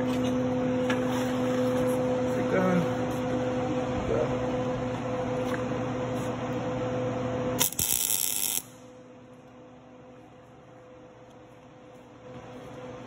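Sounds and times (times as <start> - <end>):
steady hum: 0.0 - 13.0
welder crackle: 7.6 - 8.8.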